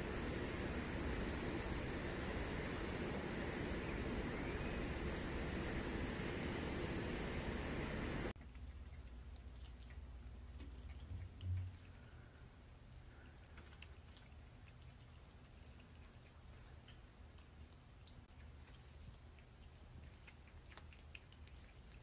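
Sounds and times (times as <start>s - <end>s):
lemurs chewing: 0.0s - 22.0s
faint clicks and smacks: 8.4s - 22.0s.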